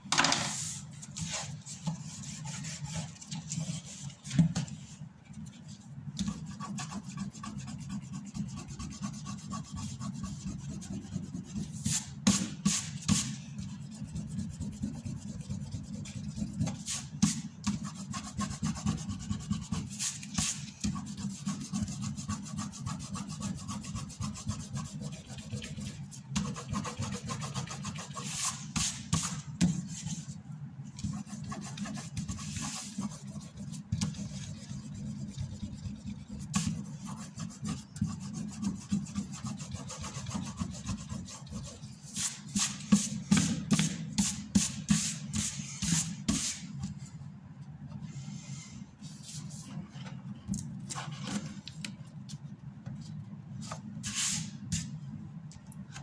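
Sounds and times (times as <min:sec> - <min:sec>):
eraser scrubbing on paper: 0:06.3 - 0:30.4, 0:31.0 - 0:43.9.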